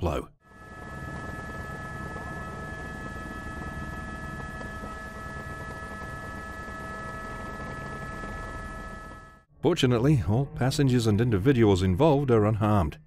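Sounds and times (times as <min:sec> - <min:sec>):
whining hum: 0:00.4 - 0:09.5.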